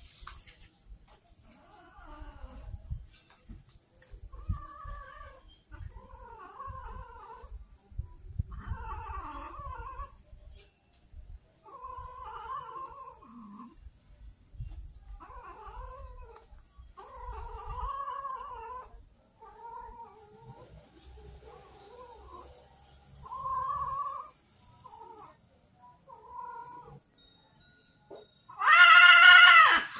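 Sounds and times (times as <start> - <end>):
cats yowling: 1.6 - 2.7, 4.3 - 7.5, 8.5 - 10.2, 11.6 - 13.8, 15.2 - 20.7, 23.2 - 25.4, 26.1 - 27.0, 28.5 - 29.9.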